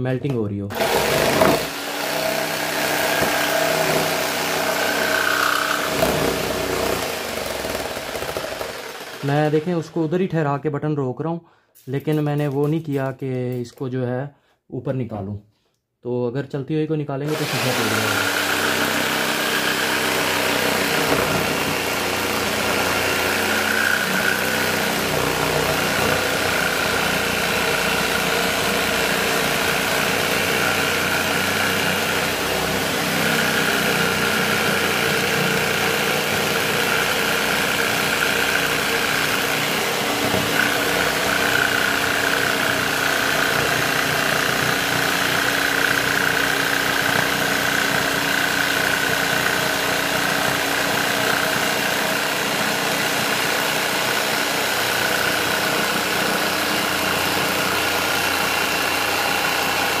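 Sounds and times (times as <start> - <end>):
jigsaw cutting acrylic: 0.7 - 10.0, 17.3 - 60.0.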